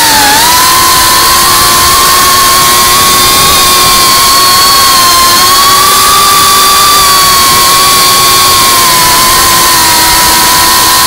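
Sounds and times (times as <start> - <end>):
drone motors whining: 0.0 - 11.0
wind noise: 0.0 - 11.0.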